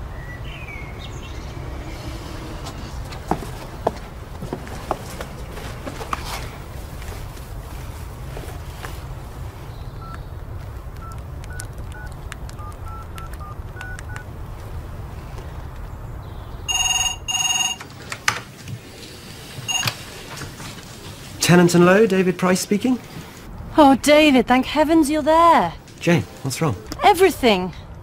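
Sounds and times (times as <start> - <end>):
low outdoor rumble: 0.0 - 16.7
phone keypad beeps: 11.0 - 14.2, 16.7 - 17.8, 19.7 - 20.0
telephone answered click: 16.7 - 17.9, 19.7 - 20.0
desk telephone ringing: 16.7 - 18.0, 19.7 - 20.1.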